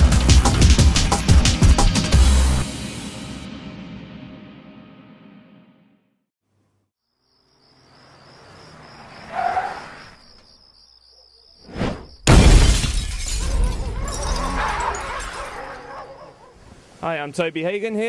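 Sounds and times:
loud crash: 11.8 - 15.5.

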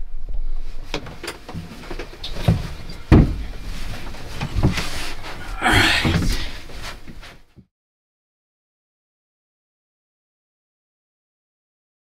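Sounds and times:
handling knocks and thumps: 0.9 - 7.6.

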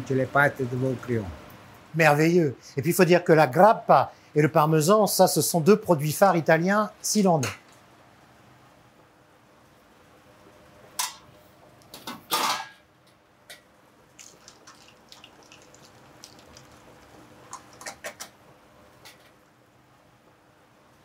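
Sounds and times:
faint steady hum: 0.0 - 21.0
metal pot lids clanking: 12.3 - 12.8.

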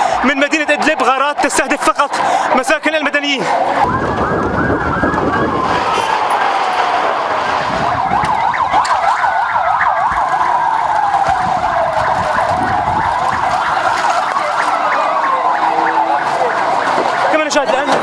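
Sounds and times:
emergency vehicle siren: 0.0 - 18.0
voices: 10.1 - 18.0.

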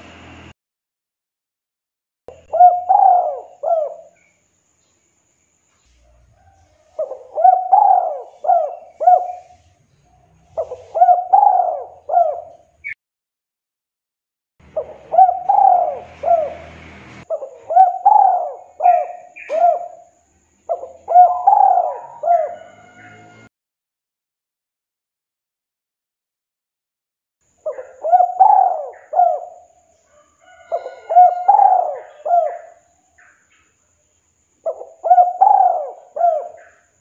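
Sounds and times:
dove cooing: 2.3 - 4.2, 6.0 - 12.7, 14.6 - 23.5, 27.6 - 29.8, 30.4 - 32.9, 34.6 - 37.0.

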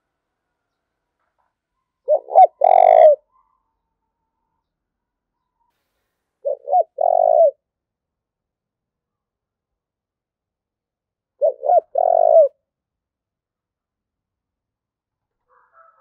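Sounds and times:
dove cooing: 2.1 - 3.3, 6.4 - 7.6, 11.4 - 12.6.

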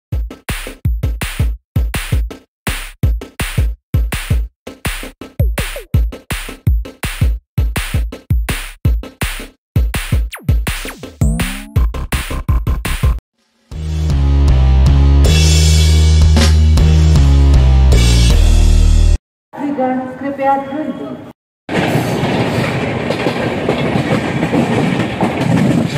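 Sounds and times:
electronic drum-machine music: 10.3 - 13.2.

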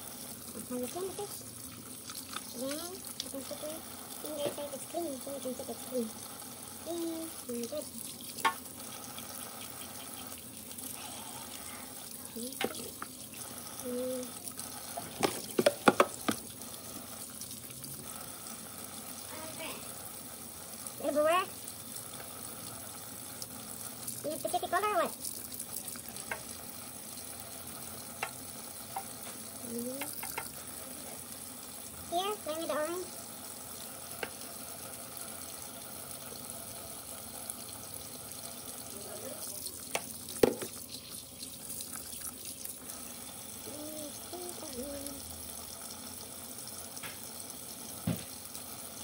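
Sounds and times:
faucet running into steel sink: 0.0 - 49.0
tap running into metal sink: 8.3 - 8.7, 12.4 - 13.2, 14.9 - 16.6, 28.2 - 30.6, 34.2 - 34.4, 39.8 - 41.1, 48.0 - 48.4.

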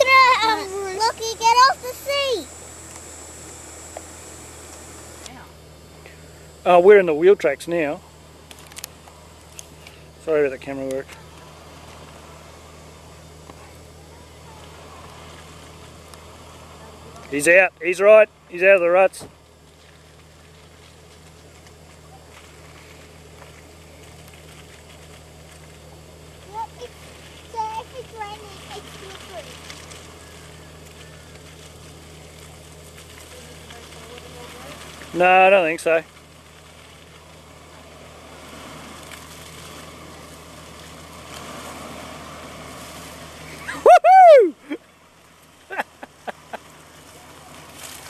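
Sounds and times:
engine running at low revs: 0.0 - 48.0
faint crackles: 19.2 - 43.9, 44.6 - 48.0.

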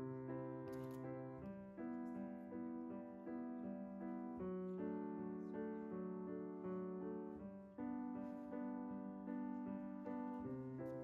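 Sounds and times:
soft electric piano chords: 0.0 - 11.0.

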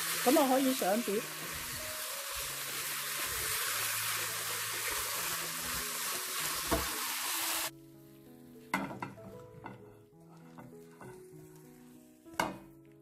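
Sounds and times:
meat sizzling in a wok: 0.0 - 7.7
soft background music: 0.0 - 13.0
spatula knocking on pan: 8.7 - 9.8.

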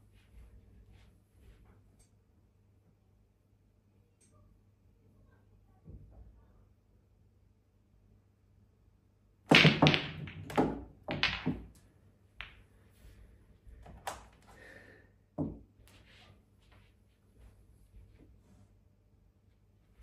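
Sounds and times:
cue ball striking racked balls: 9.5 - 11.8
pool balls clattering: 9.5 - 11.8.

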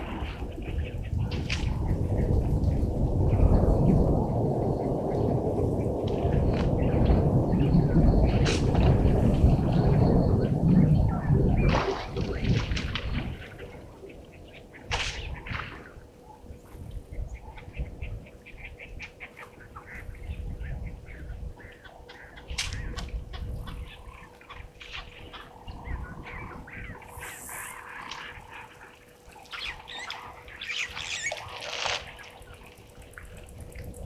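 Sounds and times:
faint electrical hum: 0.0 - 34.0
low uneven rumble: 0.0 - 34.0
birds chirping and squawking: 13.4 - 32.9.

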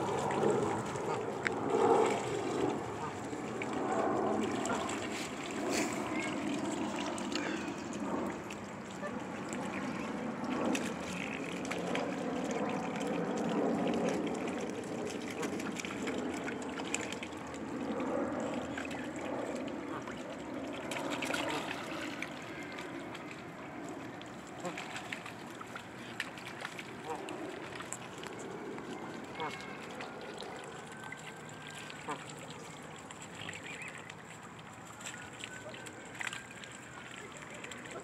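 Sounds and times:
water splashing at pond edge: 0.0 - 38.0.

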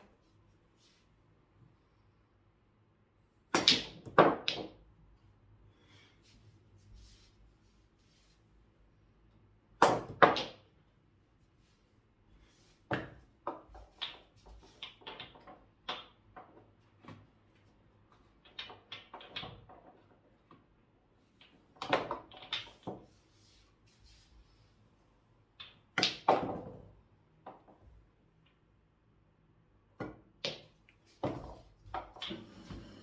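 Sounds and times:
pool balls clacking: 12.9 - 16.8, 18.4 - 20.4.

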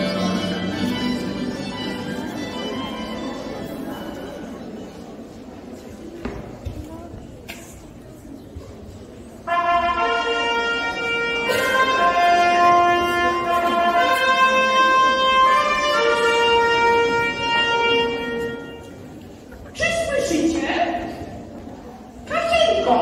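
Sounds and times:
reedy wind instrument tune: 0.0 - 4.2, 9.4 - 19.3.

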